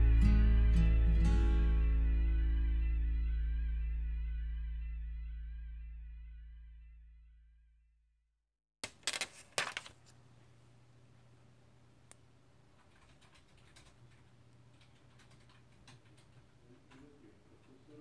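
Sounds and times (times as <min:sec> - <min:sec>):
low steady hum: 0:00.0 - 0:07.6.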